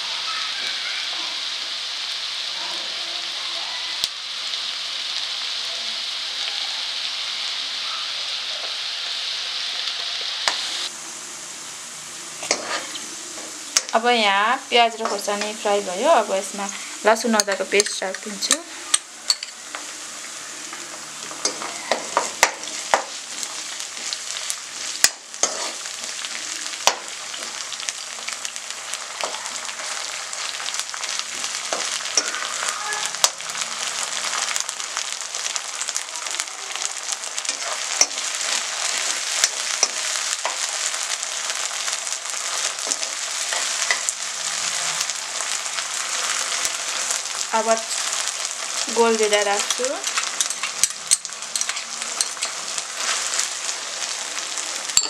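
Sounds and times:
onions sizzling in oil: 0.0 - 55.0
metal spatula scraping a pan: 12.4 - 13.9, 25.4 - 26.1, 31.4 - 33.4.

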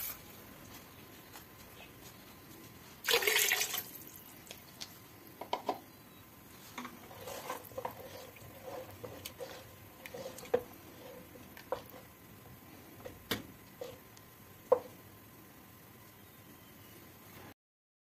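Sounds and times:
liquid sloshing in pot: 3.0 - 4.1, 6.7 - 12.1
water pouring and splashing: 3.0 - 4.2
spoon knocking and scraping pot: 6.6 - 12.1, 14.7 - 15.0.

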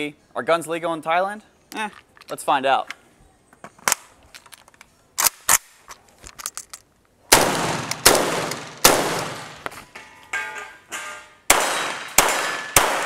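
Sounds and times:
rifle shots echoing: 7.3 - 9.6, 11.5 - 13.0.

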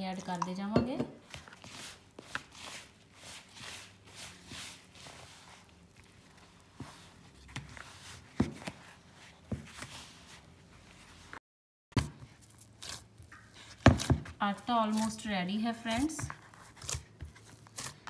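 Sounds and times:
hand squeezing dough: 1.2 - 11.4.

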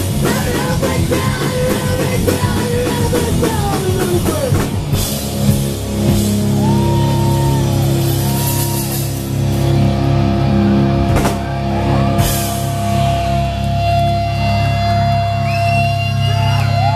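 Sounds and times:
guitar feedback whine: 4.9 - 16.9
crashing drum hits: 11.1 - 11.6.

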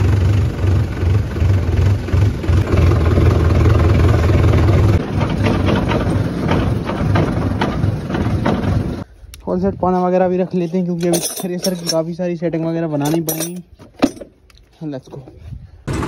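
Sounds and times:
tractor diesel engine idling: 0.0 - 9.0.

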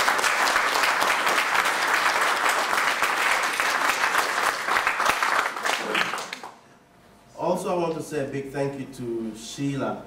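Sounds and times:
audience applauding: 0.0 - 6.6.

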